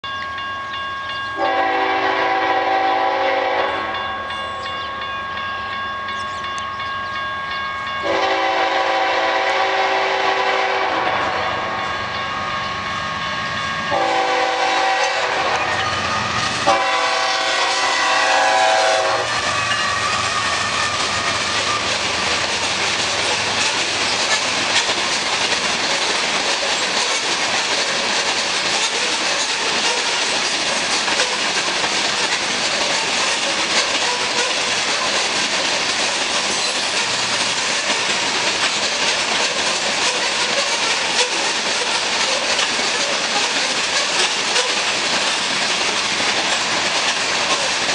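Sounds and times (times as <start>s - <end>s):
train cars rumbling past: 0.1s - 47.9s
locomotive horn blasts: 1.4s - 4.0s, 8.0s - 11.8s, 13.9s - 21.9s
wheels clacking over rail joints: 12.0s - 47.9s.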